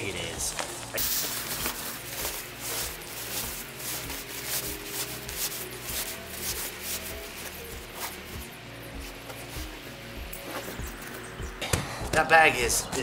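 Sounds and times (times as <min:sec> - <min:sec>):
fabric rustling and swishing: 0:00.5 - 0:08.4.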